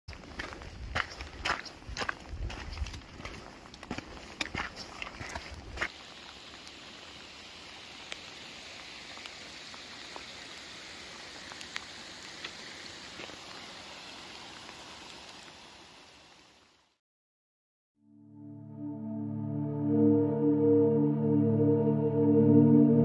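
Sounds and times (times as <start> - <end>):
steady rain falling: 3.2 - 17.0.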